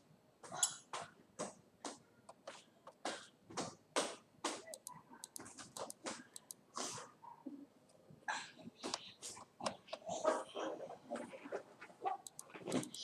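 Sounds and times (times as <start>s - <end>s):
rapid sharp ticks: 12.2s - 13.0s.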